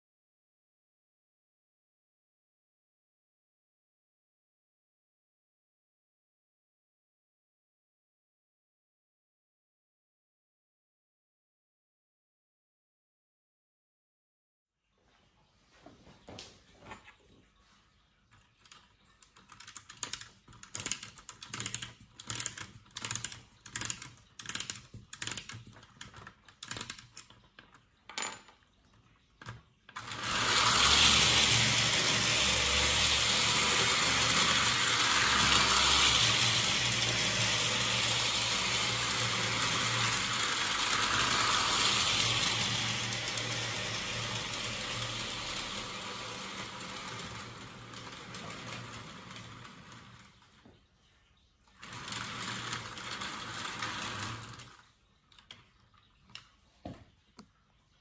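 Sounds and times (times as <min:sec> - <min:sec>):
clockwork ratchet clicking: 0:19.2 - 0:27.3, 0:30.0 - 0:48.4
toy train whirring on tin track: 0:19.3 - 0:27.3, 0:30.0 - 0:50.6, 0:51.8 - 0:54.9.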